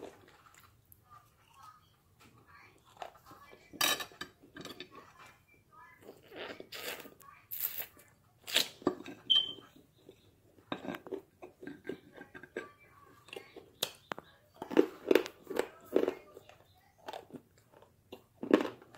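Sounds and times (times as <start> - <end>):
teeth crunching dry clay: 8.4 - 18.9.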